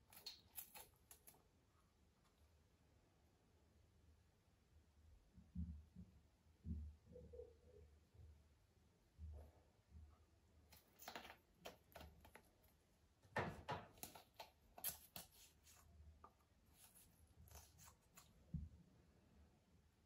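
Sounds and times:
plastic tube clicks and scrapes: 0:13.7 - 0:15.5.

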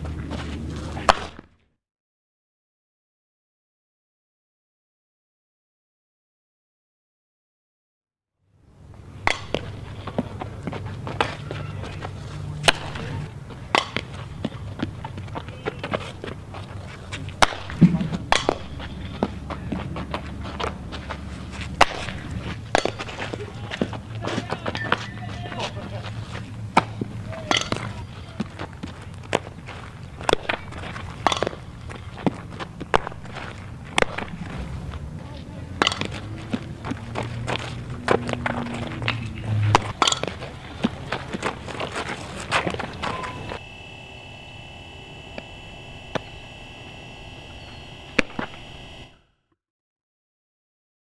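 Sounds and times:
ball hitting bat and glove: 0:00.0 - 0:01.5, 0:09.0 - 0:16.4, 0:17.1 - 0:35.0, 0:35.7 - 0:43.6, 0:48.1 - 0:48.8
low steady hum: 0:08.6 - 0:49.2.

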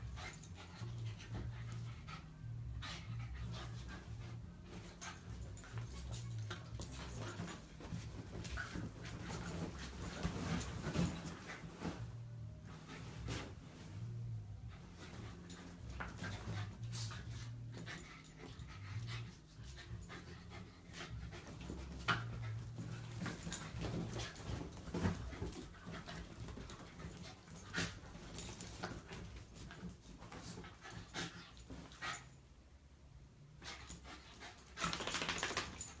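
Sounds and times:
paws scuffling on bedcover: 0:03.0 - 0:32.4
dog panting: 0:14.7 - 0:29.8.

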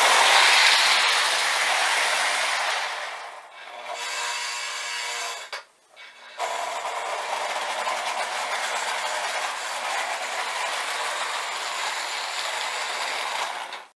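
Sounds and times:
model train running on track: 0:00.0 - 0:03.9, 0:06.7 - 0:13.9.

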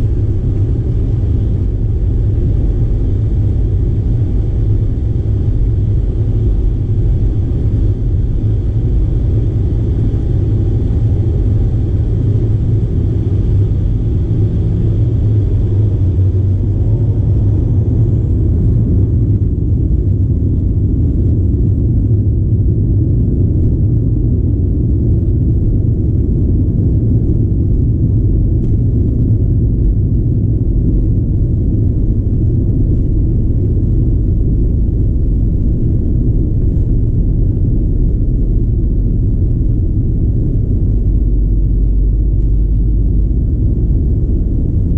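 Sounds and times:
aircraft cabin engine rumble: 0:00.0 - 0:44.9
faint engine whine: 0:00.0 - 0:44.9.

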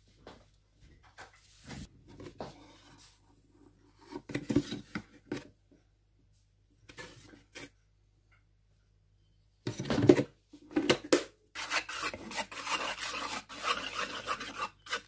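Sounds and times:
spoon scraping wooden bowl: 0:11.6 - 0:15.0.

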